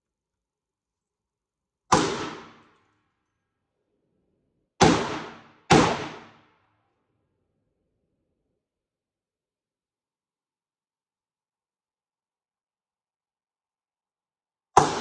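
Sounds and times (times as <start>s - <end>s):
gunshots ringing out: 1.9s - 2.8s, 4.8s - 6.5s, 14.8s - 15.0s.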